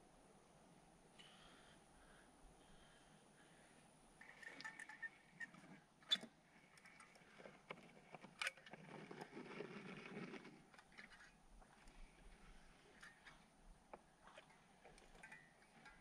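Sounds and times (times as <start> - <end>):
soft rustling handling noise: 4.2 - 16.0.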